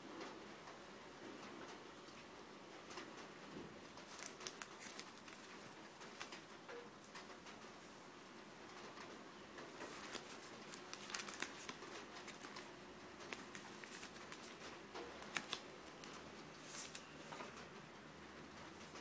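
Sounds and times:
discs clicking and rustling: 2.9s - 7.8s, 8.7s - 17.9s.

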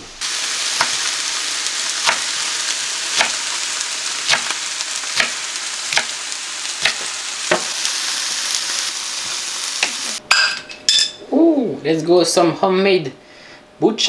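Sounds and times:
food sizzling in a frying pan: 0.0s - 10.6s
knife chopping on wooden board: 2.0s - 2.3s, 3.1s - 3.4s, 4.3s - 4.5s, 5.2s - 6.2s, 6.8s - 7.8s.

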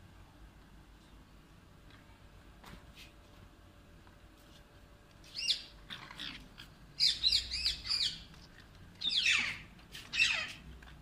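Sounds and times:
parakeets screeching: 5.3s - 8.4s, 9.0s - 10.6s.

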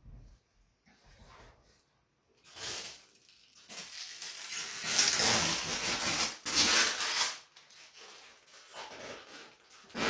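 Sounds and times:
plastic film peeling: 2.5s - 10.0s.

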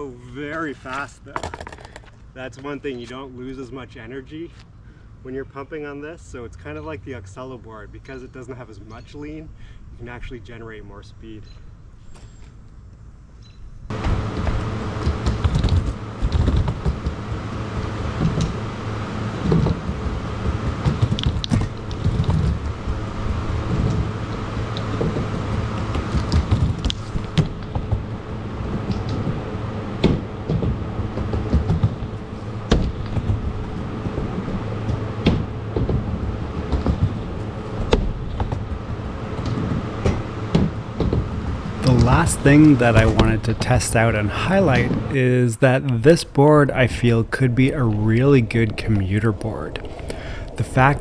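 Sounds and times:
skateboard knocks and clacks: 1.4s - 2.1s
skateboard wheels rolling on ramp: 13.9s - 45.2s.

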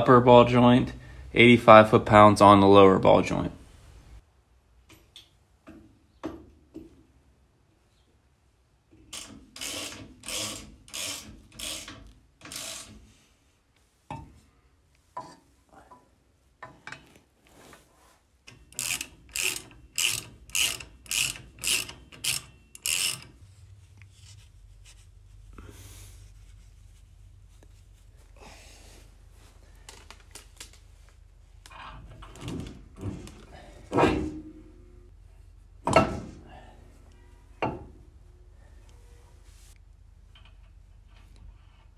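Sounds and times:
socket ratchet rasping: 9.1s - 13.0s, 18.5s - 23.4s
tools clicking and clinking: 18.5s - 23.4s.

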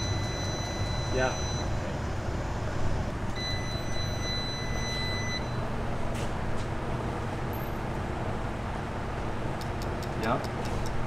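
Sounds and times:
steady electronic beep: 0.0s - 1.8s, 2.5s - 5.7s.

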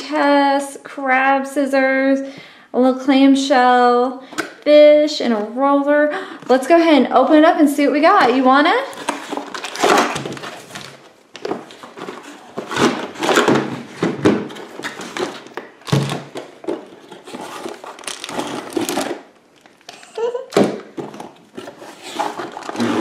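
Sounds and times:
cardboard and plastic rustling: 8.1s - 23.0s.

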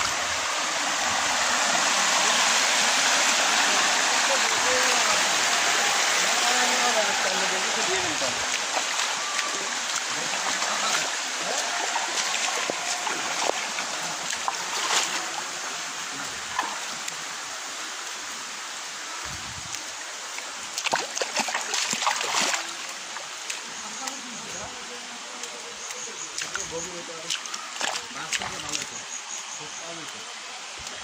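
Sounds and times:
shallow stream rushing: 0.0s - 31.0s
feet splashing through water: 3.8s - 15.5s, 20.4s - 24.2s, 26.3s - 29.0s.

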